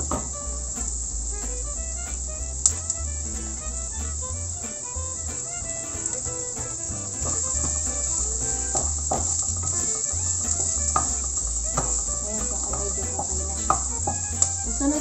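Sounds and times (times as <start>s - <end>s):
onion sizzling in hot oil: 0.0s - 15.0s.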